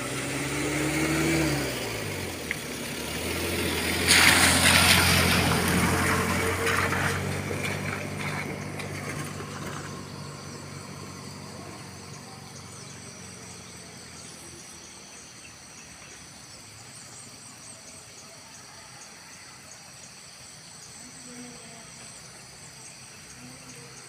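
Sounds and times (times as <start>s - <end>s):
vehicle engine running: 0.0s - 18.6s.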